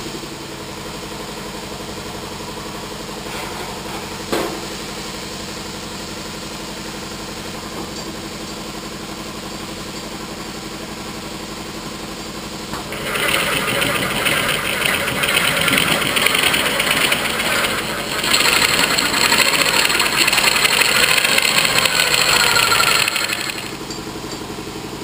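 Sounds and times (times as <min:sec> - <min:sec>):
pulsing mechanical drone: 0:12.9 - 0:24.0.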